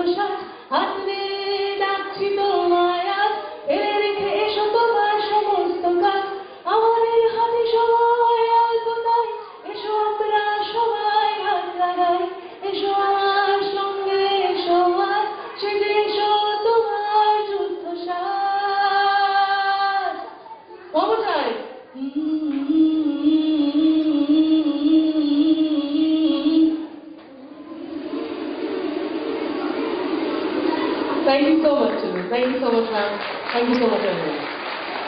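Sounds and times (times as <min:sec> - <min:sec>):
woman singing into microphone: 0:00.0 - 0:20.2, 0:21.9 - 0:27.2
singer breathing: 0:00.4 - 0:00.8, 0:09.4 - 0:09.7, 0:15.4 - 0:15.6.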